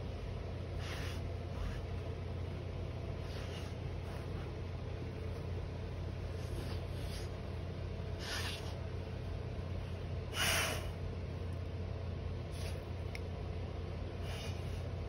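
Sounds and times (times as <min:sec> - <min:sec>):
steady low hum: 0:00.0 - 0:15.0
dog sniffing and snorting: 0:00.6 - 0:02.2, 0:02.9 - 0:05.4, 0:06.1 - 0:11.0, 0:12.4 - 0:13.1, 0:14.1 - 0:15.0.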